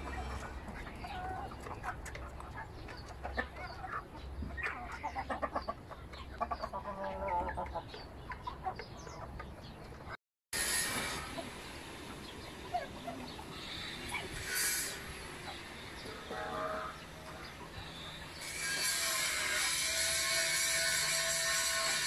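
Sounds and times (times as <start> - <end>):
chickens clucking: 0.0 - 10.2, 10.9 - 18.8.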